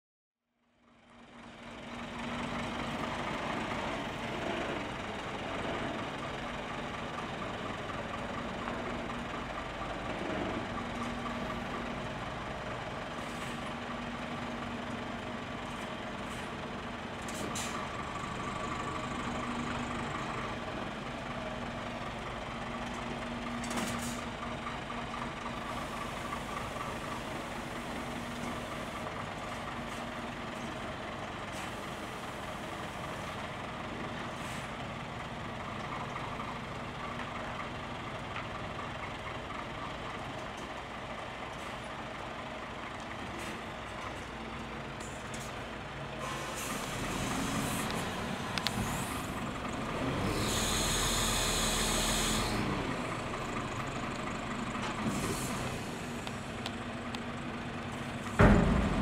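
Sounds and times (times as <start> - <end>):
diesel truck engine running: 0.9 - 59.0
short air hisses: 46.2 - 48.1, 55.0 - 56.2.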